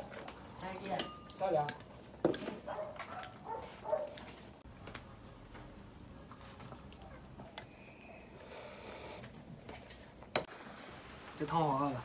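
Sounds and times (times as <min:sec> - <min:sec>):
utensils clinking on pot and bowls: 0:00.8 - 0:03.3
faint steady hiss: 0:07.4 - 0:12.0.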